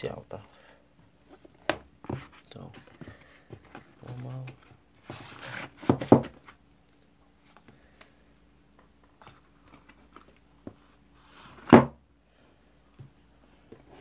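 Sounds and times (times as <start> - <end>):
box rub and thump: 5.0 - 6.5.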